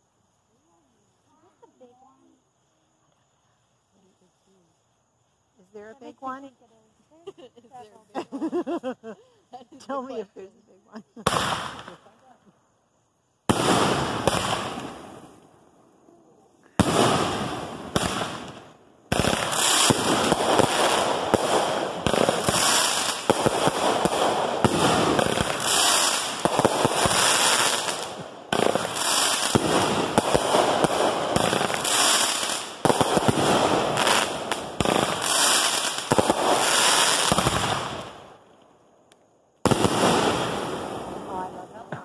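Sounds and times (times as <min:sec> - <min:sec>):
firework shots: 0:11.2 - 0:12.2, 0:13.4 - 0:15.5, 0:16.7 - 0:38.4, 0:39.6 - 0:42.0
fireworks barrage crackling: 0:11.2 - 0:12.3, 0:13.4 - 0:15.6, 0:16.3 - 0:38.6, 0:39.6 - 0:42.0.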